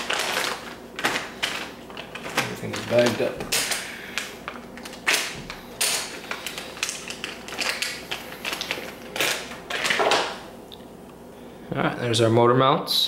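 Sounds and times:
plastic bags crinkling: 0.0 - 10.4.

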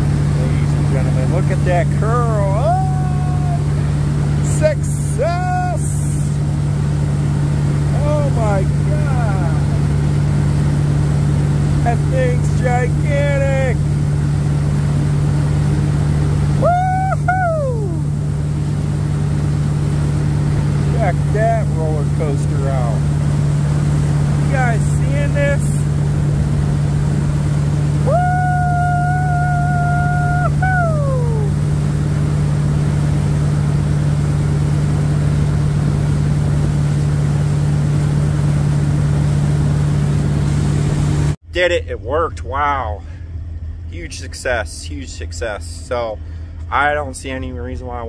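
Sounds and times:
wake water churning: 0.0 - 41.4
high whine: 0.0 - 42.6
boat engine running: 0.0 - 48.0
person whooping: 2.5 - 3.8, 16.6 - 18.1, 28.0 - 31.6.

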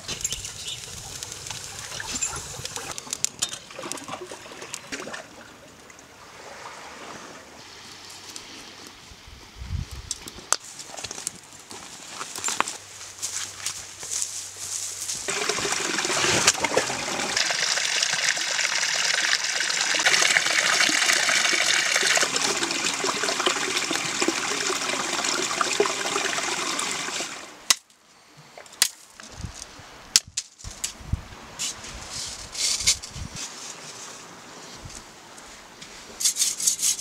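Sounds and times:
stream splashing over rocks: 15.3 - 27.6.

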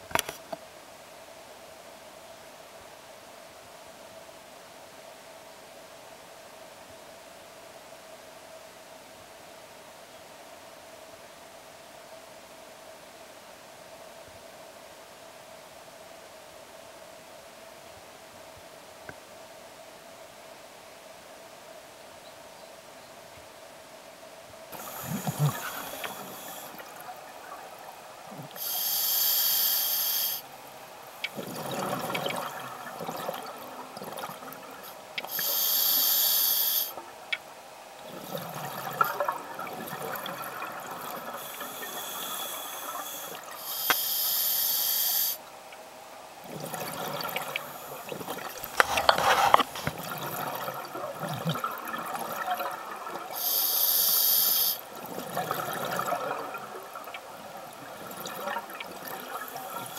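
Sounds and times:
regulator inhale hiss: 24.7 - 27.0, 28.4 - 30.6, 34.8 - 37.0, 41.3 - 45.5, 53.3 - 54.9, 59.4 - 59.9
rush of exhaled bubbles: 24.8 - 28.8, 31.2 - 35.5, 38.0 - 43.7, 46.4 - 53.6, 54.8 - 59.9.

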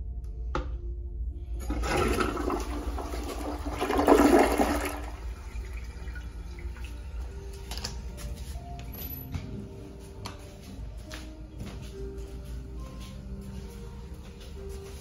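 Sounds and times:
toilet flush click: 1.6 - 6.2.

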